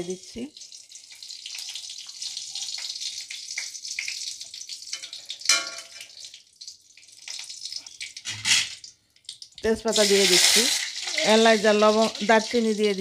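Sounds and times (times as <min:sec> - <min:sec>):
ghee sizzling and crackling: 0:00.0 - 0:13.0
metal spatula striking pan: 0:04.9 - 0:06.1.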